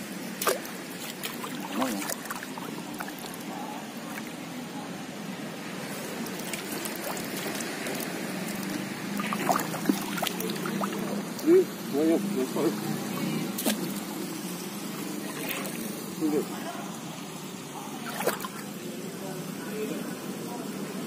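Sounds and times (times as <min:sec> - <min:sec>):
water splashes: 0:00.0 - 0:04.7, 0:05.5 - 0:17.0, 0:17.6 - 0:19.0
shallow water sloshing: 0:00.3 - 0:04.4, 0:05.9 - 0:11.4, 0:15.2 - 0:16.1, 0:17.9 - 0:18.8.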